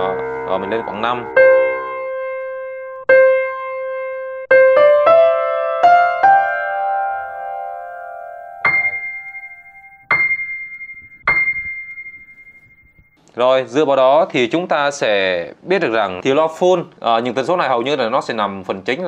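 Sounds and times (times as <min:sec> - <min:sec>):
piano notes: 0:00.0 - 0:13.2.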